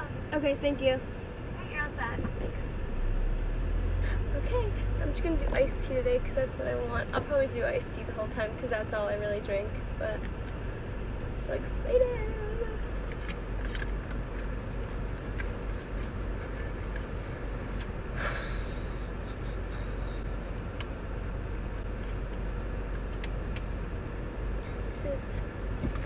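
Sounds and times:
car engine hum inside cabin: 0:00.0 - 0:26.0.

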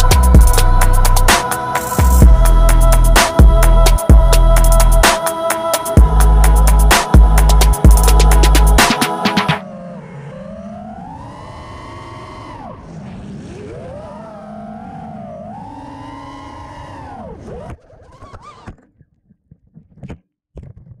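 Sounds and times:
drone motors whining: 0:08.3 - 0:18.5.

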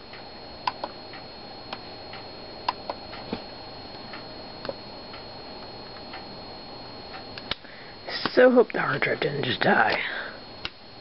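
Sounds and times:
laptop hard drive clicking: 0:00.0 - 0:06.3, 0:10.6 - 0:10.8
high-pitched camera whine: 0:00.0 - 0:11.0.

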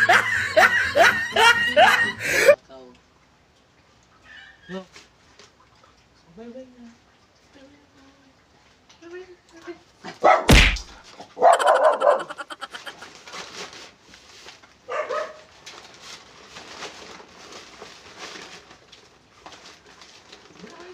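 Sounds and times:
dog barking: 0:10.2 - 0:10.5, 0:11.4 - 0:12.8, 0:14.9 - 0:15.5.

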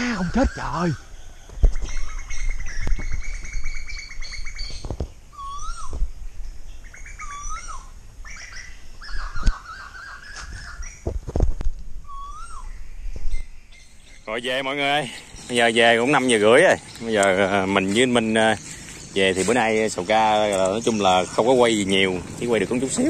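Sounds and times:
birds chattering trills: 0:00.0 - 0:11.4, 0:12.0 - 0:23.0
bird whistle: 0:01.8 - 0:06.0, 0:06.9 - 0:11.0, 0:12.0 - 0:14.3.

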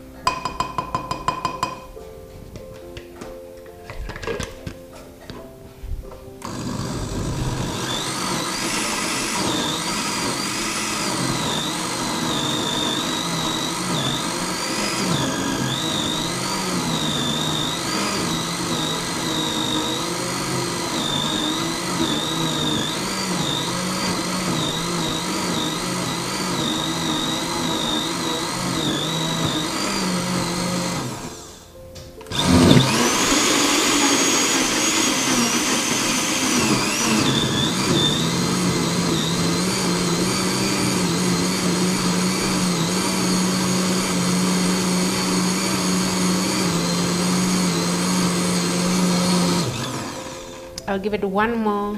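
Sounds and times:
blender motor whine: 0:06.4 - 0:31.7, 0:32.3 - 0:50.8.

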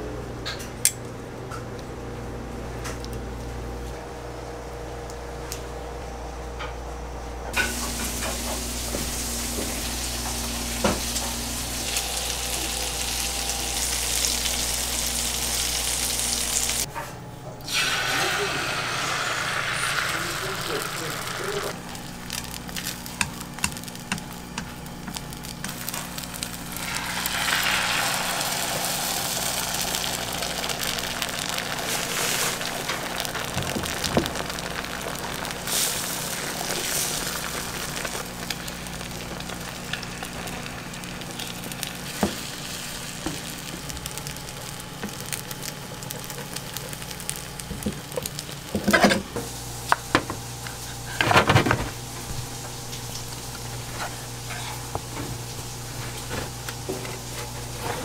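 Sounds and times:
eggs sizzling in a pan: 0:07.5 - 0:16.9, 0:17.7 - 0:51.2, 0:51.9 - 0:57.8
chopsticks clicking against pan: 0:22.8 - 0:24.7.

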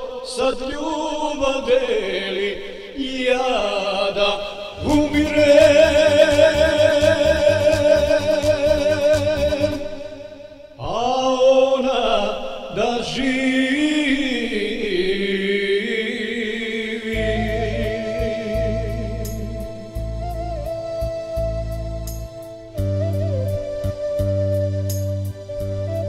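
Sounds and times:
electronic keyboard music: 0:17.6 - 0:26.0.

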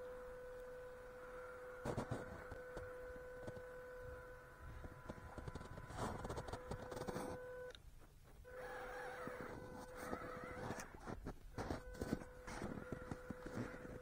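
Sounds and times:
toy car motor whining: 0:00.0 - 0:07.8, 0:08.4 - 0:14.0
tyres crunching in snow: 0:08.6 - 0:14.0.

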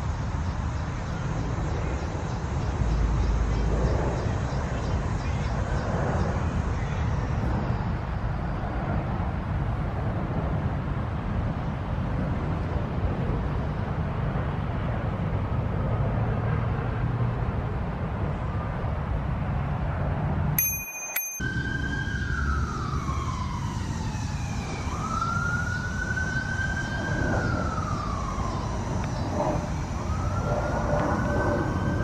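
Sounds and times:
wind buffeting microphone: 0:21.5 - 0:32.0.

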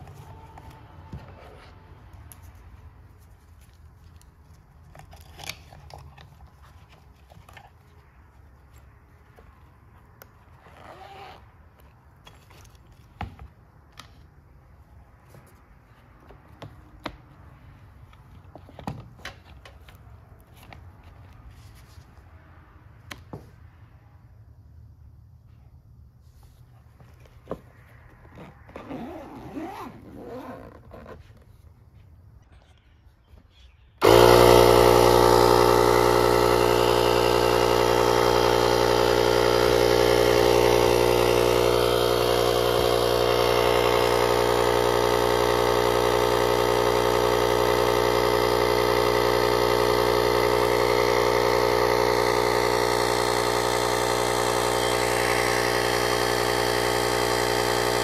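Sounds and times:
air compressor motor hum: 0:34.0 - 0:58.0.

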